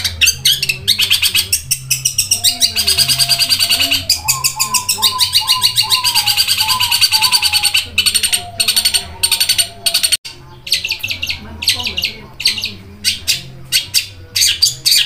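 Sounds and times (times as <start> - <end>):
bird singing rapid high chirps: 0.0 - 15.0.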